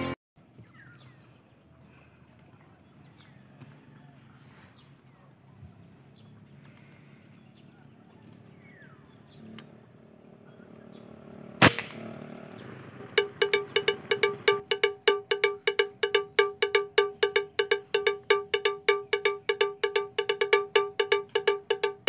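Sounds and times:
air rifle shot: 0:11.6 - 0:12.3
faint high chirping: 0:12.4 - 0:22.0.

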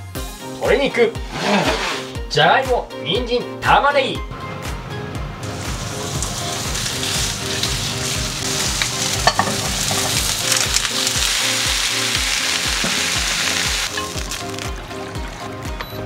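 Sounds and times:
background music with steady beat: 0:00.0 - 0:16.0
food sizzling in a frying pan: 0:05.5 - 0:14.8.

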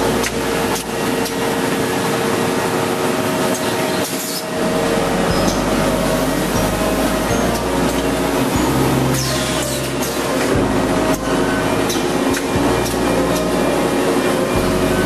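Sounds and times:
machine clacks: 0:00.0 - 0:04.5, 0:07.4 - 0:14.8
machinery humming and hissing: 0:00.0 - 0:15.0.

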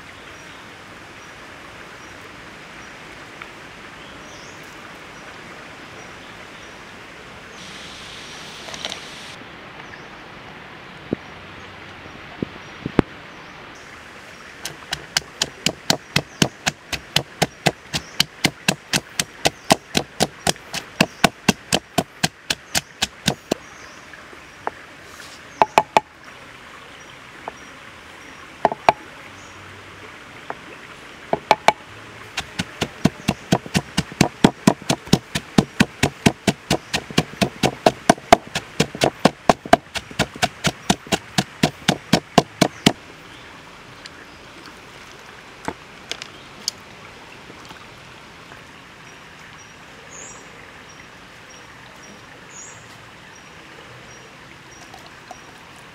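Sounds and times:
pestle pounding in wooden mortar: 0:14.6 - 0:23.6, 0:31.4 - 0:31.8, 0:32.4 - 0:43.0.

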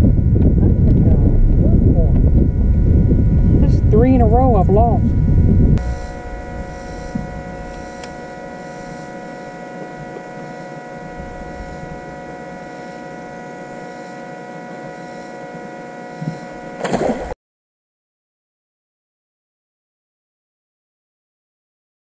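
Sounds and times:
electric trolling motor humming: 0:00.0 - 0:17.4.

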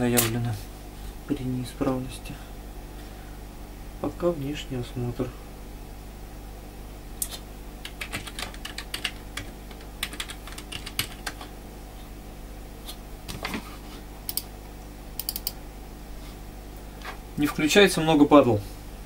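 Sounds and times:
low electrical hum: 0:00.0 - 0:19.0
typing on keyboard: 0:07.8 - 0:11.5, 0:15.2 - 0:15.6.

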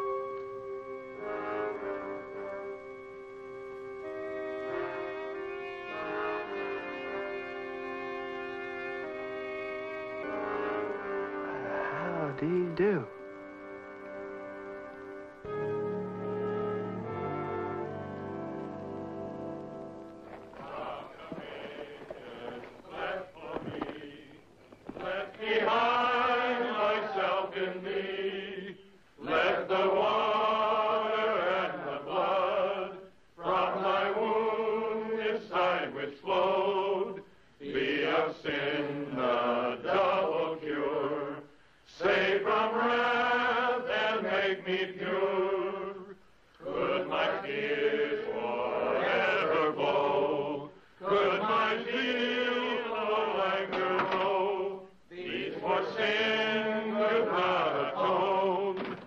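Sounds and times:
voices chanting: 0:20.2 - 0:58.9.

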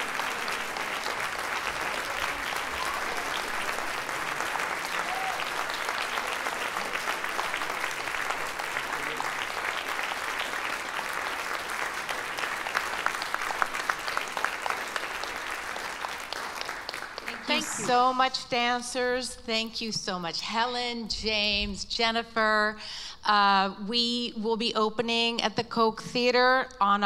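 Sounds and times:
audience applauding: 0:00.0 - 0:18.1.

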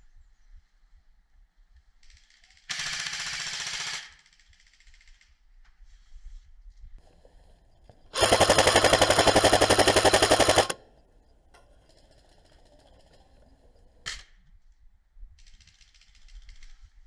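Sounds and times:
airsoft rifle rapid fire: 0:02.7 - 0:04.3, 0:08.1 - 0:10.8.

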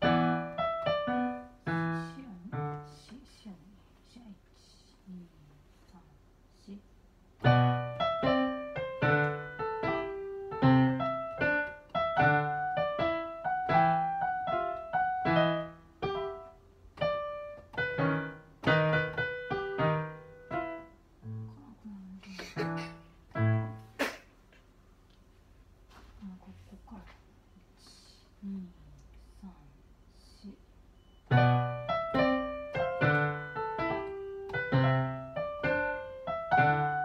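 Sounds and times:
electronic keyboard march: 0:07.4 - 0:21.0, 0:31.3 - 0:37.0.

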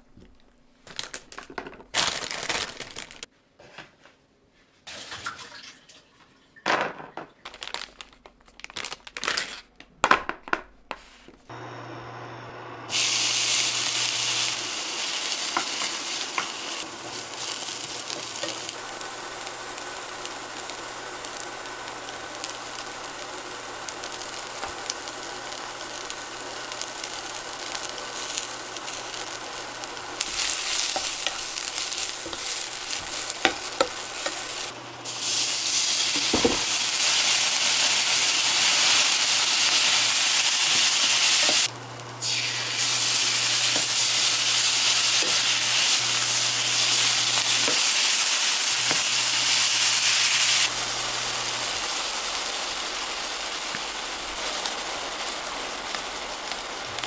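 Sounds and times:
vegetables sizzling in a frying pan: 0:11.5 - 0:57.0.

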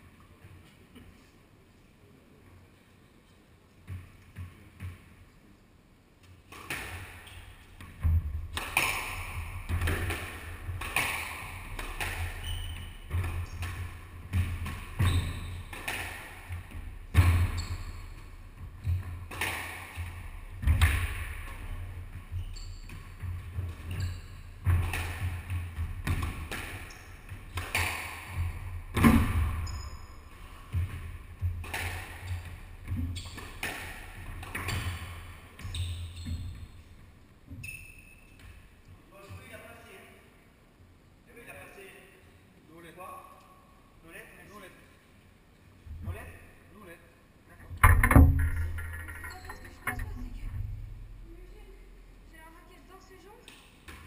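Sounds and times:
squash ball cracking off rackets: 0:08.5 - 0:18.3, 0:18.9 - 0:21.7, 0:24.6 - 0:29.7, 0:30.4 - 0:35.3.

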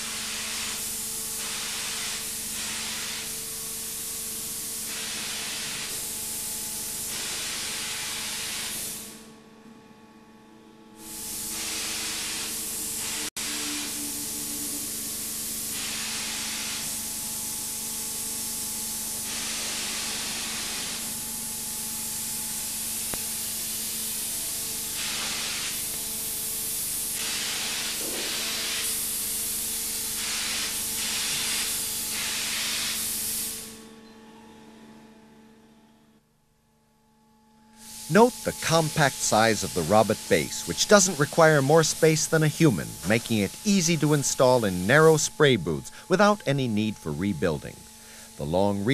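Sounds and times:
paint spray gun hissing: 0:00.0 - 0:03.4, 0:04.6 - 0:09.2, 0:11.0 - 0:21.2, 0:22.5 - 0:33.7, 0:37.8 - 0:48.8
low hum: 0:10.4 - 0:16.3.

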